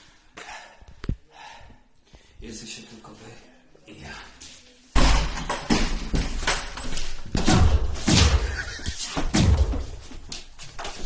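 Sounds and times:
heavy thuds and bangs: 7.3 - 10.2.

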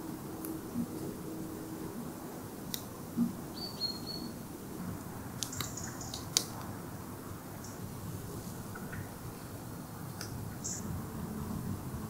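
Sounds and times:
bird whistling: 3.5 - 4.3.

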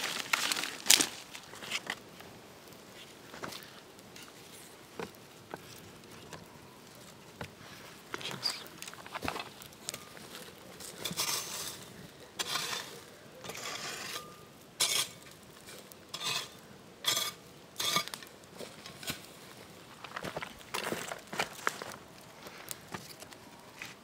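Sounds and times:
footsteps crunching on dry leaves: 0.0 - 2.0, 18.6 - 22.7.

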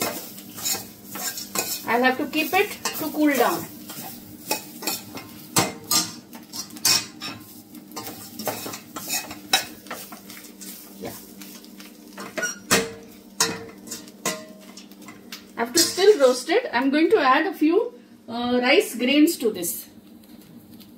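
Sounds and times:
faint sizzle: 0.0 - 20.9
spoon scraping metal pot: 0.1 - 1.9.

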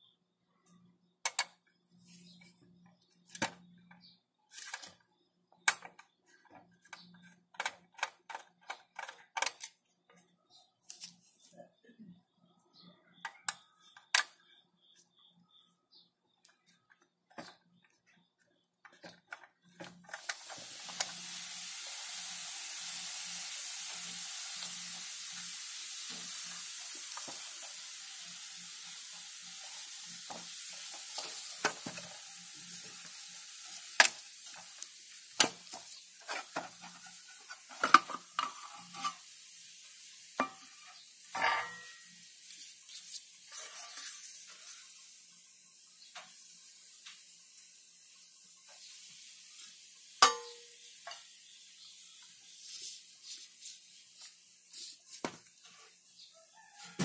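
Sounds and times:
steady high hiss: 19.8 - 55.3.

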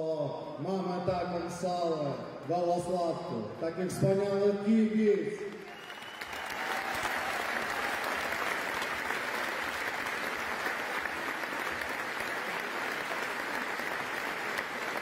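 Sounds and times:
crowd applauding: 5.5 - 15.0.

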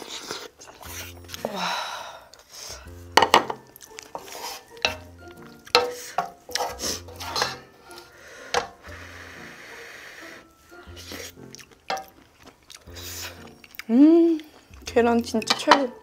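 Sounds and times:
background music: 0.0 - 16.0
utensils clinking against dishes: 2.7 - 8.8, 15.1 - 16.0.

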